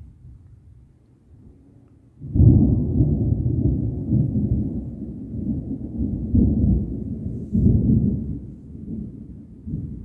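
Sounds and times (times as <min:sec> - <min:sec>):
thunder rumbling: 0:02.2 - 0:10.0.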